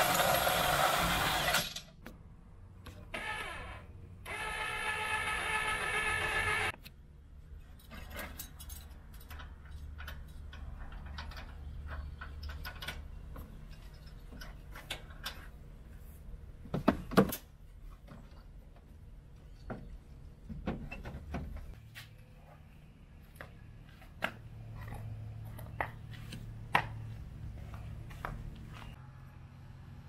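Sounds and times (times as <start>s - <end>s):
chains and hitch clinking: 7.6s - 14.6s.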